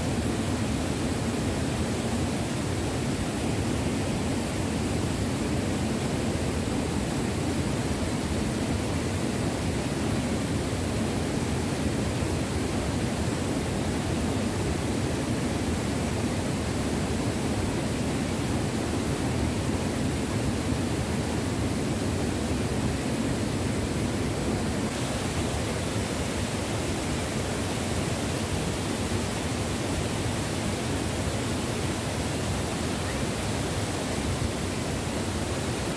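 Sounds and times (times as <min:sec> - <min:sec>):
waterfall rushing: 0:00.0 - 0:35.9.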